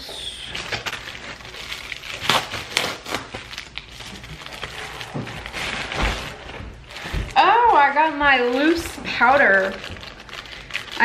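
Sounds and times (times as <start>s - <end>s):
plastic bag crinkling: 0.5s - 11.0s.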